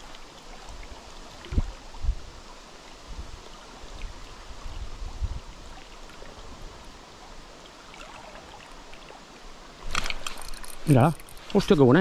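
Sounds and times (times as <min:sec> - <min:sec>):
river rushing: 0:05.6 - 0:12.0.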